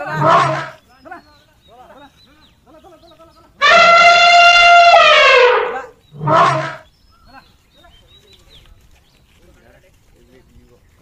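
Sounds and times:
elephant trumpeting: 0.0s - 0.8s, 3.6s - 6.9s.

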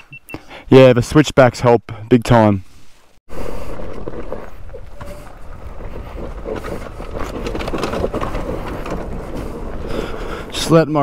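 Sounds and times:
tyres sliding over loose stones: 3.5s - 11.0s.

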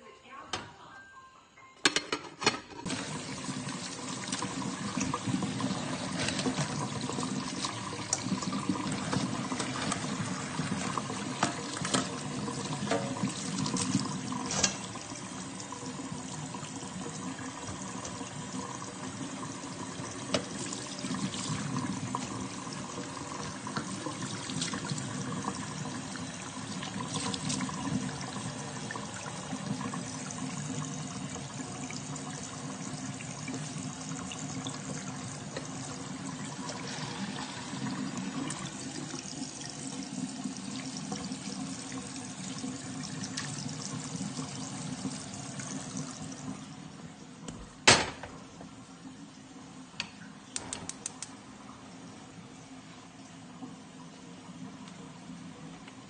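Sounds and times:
tap water running into metal sink: 2.9s - 46.7s
gas stove knob clicking: 50.6s - 51.3s.

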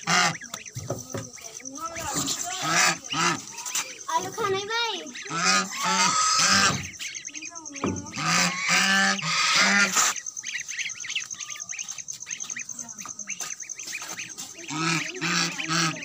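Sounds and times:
duck quacking loudly: 0.0s - 0.6s, 2.5s - 3.8s, 5.1s - 7.0s, 8.1s - 10.2s, 14.2s - 16.0s
ducklings peeping softly: 0.0s - 16.0s.

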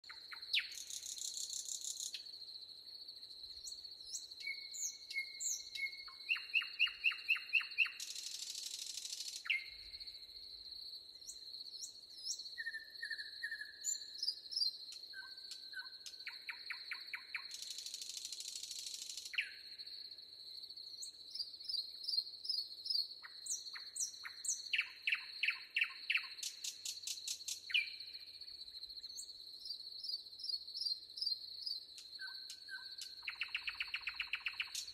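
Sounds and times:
high insect trill: 0.2s - 12.6s, 14.2s - 34.9s
birds chirping and trilling: 32.2s - 34.9s.

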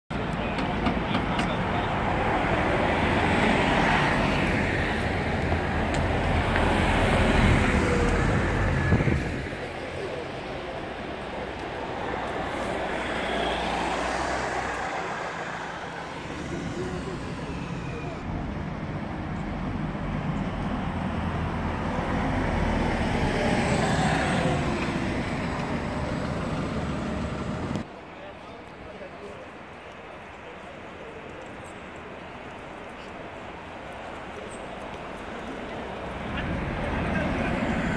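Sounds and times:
buses driving past: 0.2s - 28.1s, 29.4s - 37.9s
car passing: 1.2s - 27.9s, 35.5s - 37.9s.

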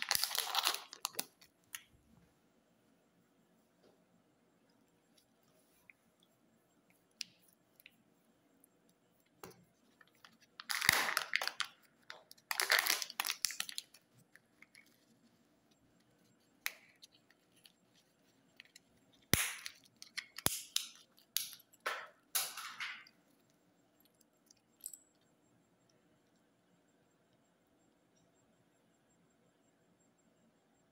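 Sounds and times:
wrappers crinkling and tearing: 0.0s - 1.8s, 10.2s - 14.8s.

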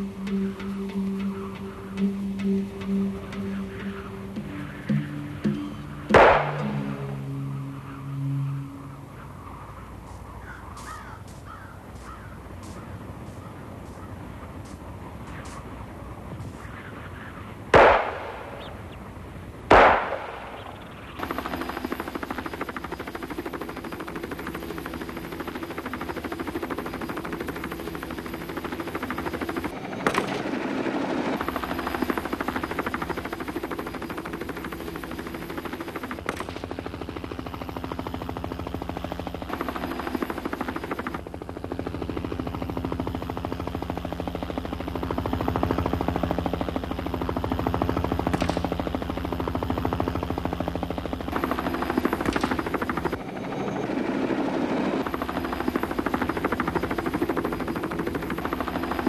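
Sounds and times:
helicopter rotor chatter: 0.0s - 59.0s
loud gunshots: 6.1s - 6.9s, 17.7s - 18.7s, 19.7s - 20.6s
sharp crack: 6.1s - 7.0s, 17.7s - 18.7s, 19.7s - 20.7s.

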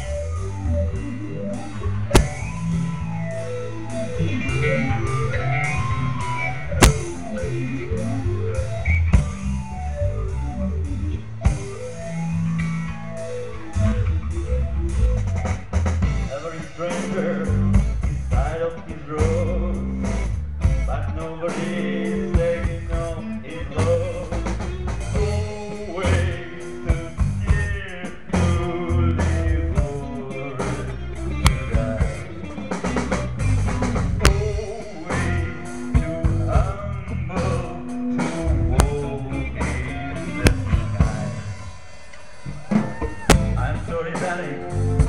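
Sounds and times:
drum kit: 0.0s - 45.0s
electric guitar: 0.0s - 45.0s.

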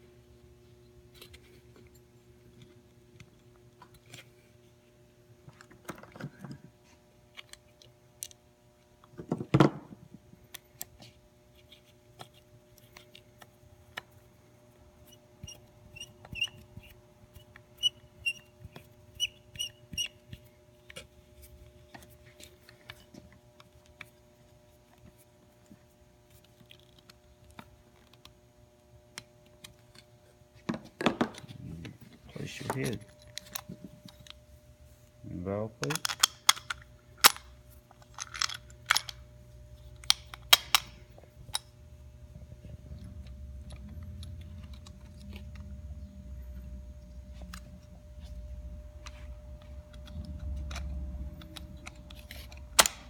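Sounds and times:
faint steady hum: 0.0s - 53.0s
short high squeaks: 19.1s - 20.2s.

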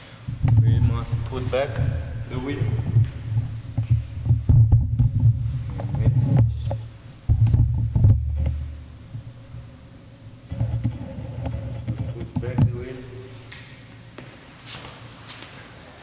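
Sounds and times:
faint low hum: 0.0s - 14.4s
sharp knocks: 0.3s - 8.8s.

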